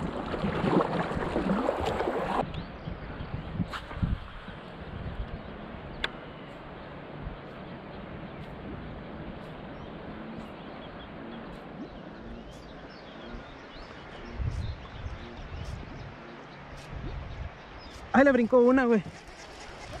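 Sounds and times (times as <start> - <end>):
faint bird chirps: 4.8 - 18.2.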